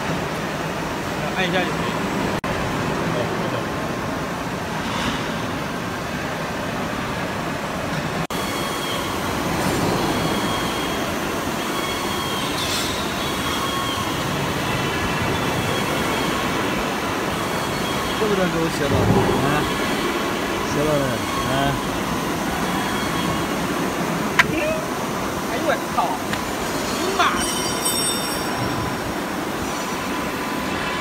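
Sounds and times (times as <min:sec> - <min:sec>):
faint high whine: 0:08.4 - 0:25.7.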